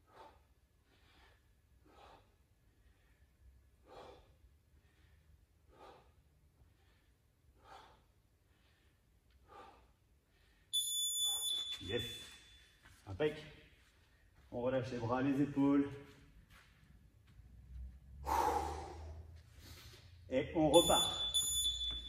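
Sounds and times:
person breathing hard: 0.0s - 10.7s, 18.1s - 20.3s.

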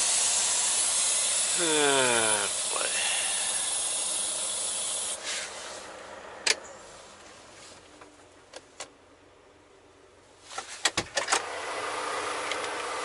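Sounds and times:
loud air hiss: 0.0s - 5.9s.

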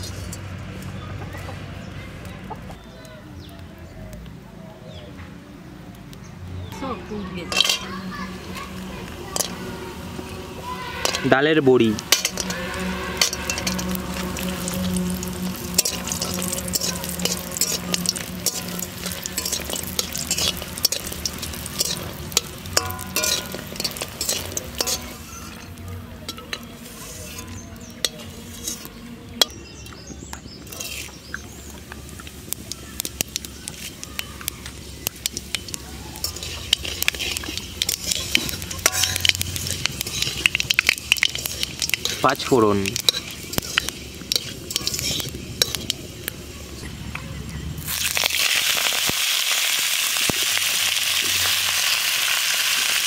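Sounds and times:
food sizzling in oil: 6.7s - 47.0s, 47.8s - 53.0s
spatula scraping a metal pan: 7.5s - 29.6s, 30.6s - 31.2s, 35.2s - 46.0s.

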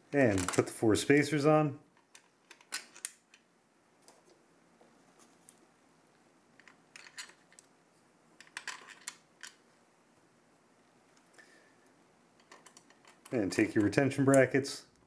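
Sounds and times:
plastic spacers clicking onto bolts: 0.2s - 0.8s, 12.4s - 14.6s.

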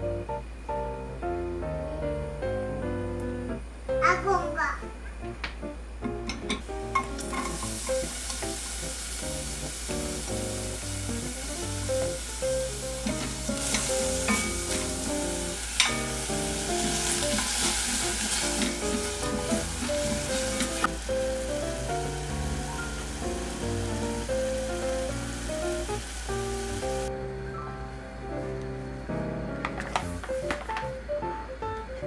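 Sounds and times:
soft background music: 0.0s - 32.0s
vegetables sizzling in oil: 6.6s - 27.1s, 29.8s - 30.6s.

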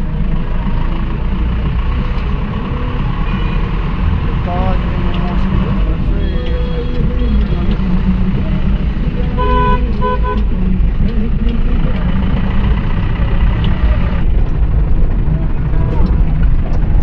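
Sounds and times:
vehicle engine and road rumble: 0.0s - 17.0s
vehicle horn tooting: 3.3s - 3.9s, 9.4s - 10.5s.

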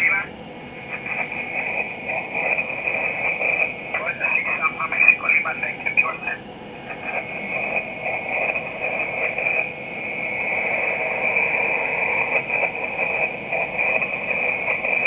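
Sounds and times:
faint garbled radio signals: 0.0s - 15.0s
radio static hiss: 0.0s - 15.0s
continuous high whistle: 6.9s - 15.0s.

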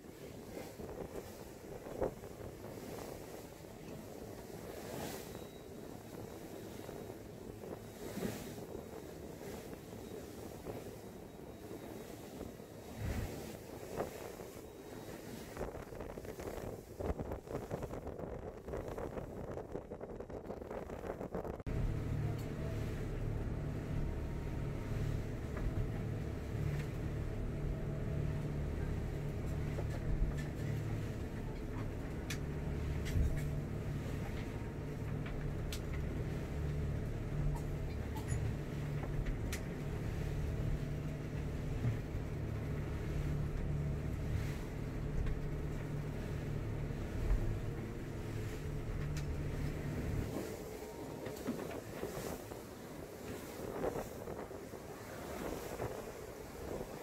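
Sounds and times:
diesel engines droning: 21.6s - 53.4s.

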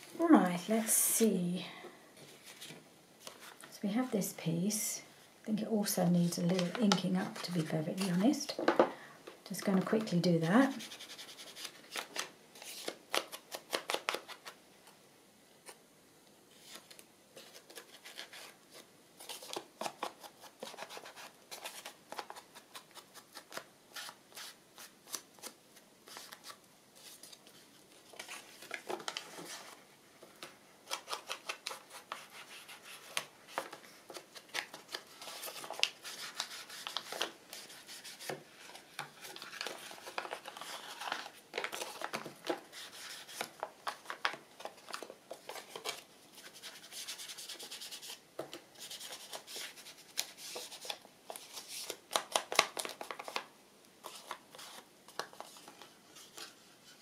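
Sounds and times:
dry scratchy rubbing on paper: 10.6s - 11.8s.

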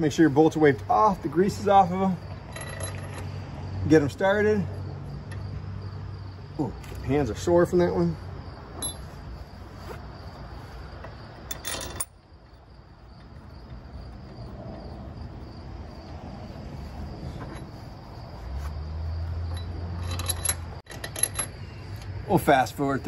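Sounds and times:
high insect drone: 0.0s - 11.5s, 12.1s - 20.8s
metal bolts clinking: 1.5s - 3.3s, 8.8s - 9.2s, 11.0s - 13.8s, 19.5s - 21.6s.

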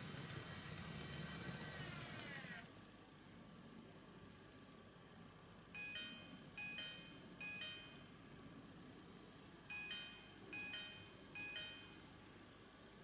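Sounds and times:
electronic two-note chime: 5.8s - 8.1s.

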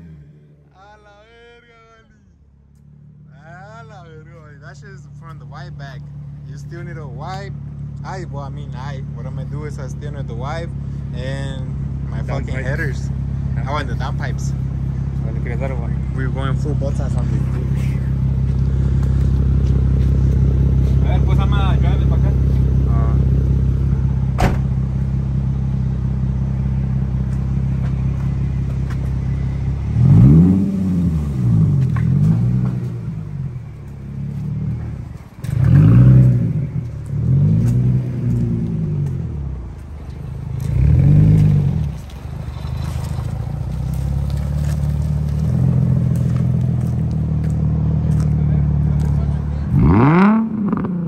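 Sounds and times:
car engine idling and revving: 0.0s - 1.2s, 2.3s - 51.0s.

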